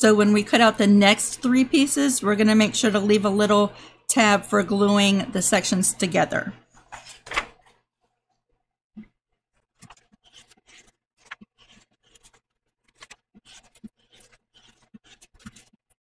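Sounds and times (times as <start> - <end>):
paper sheets rustling and sliding: 6.7 - 7.8, 9.8 - 15.8.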